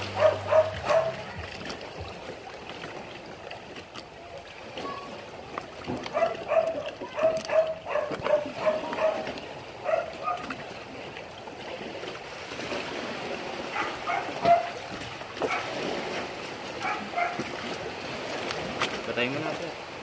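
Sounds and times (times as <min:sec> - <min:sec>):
dog barking in high yips: 0:00.2 - 0:01.2, 0:06.1 - 0:10.5, 0:13.8 - 0:14.8, 0:16.8 - 0:17.4.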